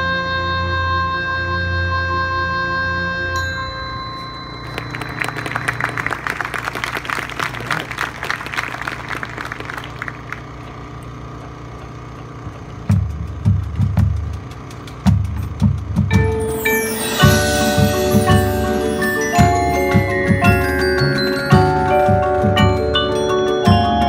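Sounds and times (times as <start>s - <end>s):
crowd applauding: 4.6s - 11.0s
bass drum beat: 12.5s - 16.6s
marching band held chord: 16.1s - 24.0s.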